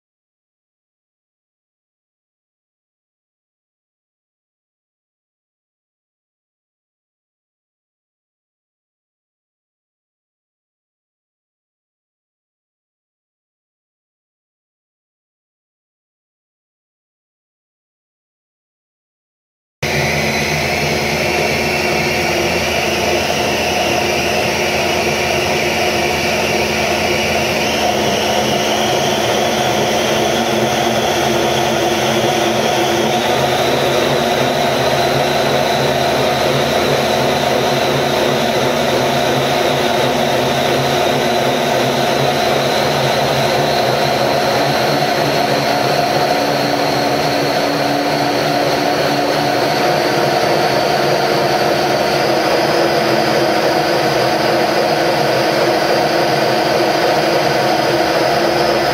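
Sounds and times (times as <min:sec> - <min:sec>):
engine whirring with high whine: 0:19.8 - 0:58.9.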